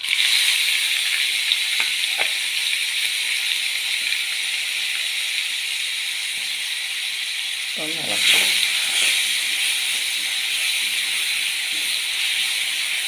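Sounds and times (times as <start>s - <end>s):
shallots sizzling in hot oil: 0.0s - 13.0s.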